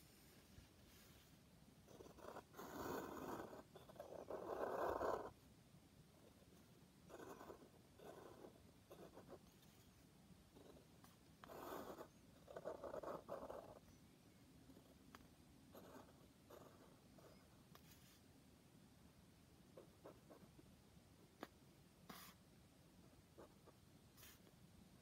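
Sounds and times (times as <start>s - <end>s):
marker scratching on paper: 1.9s - 5.4s, 7.1s - 9.9s, 10.6s - 13.8s, 14.7s - 18.2s, 21.4s - 22.4s, 23.4s - 24.5s.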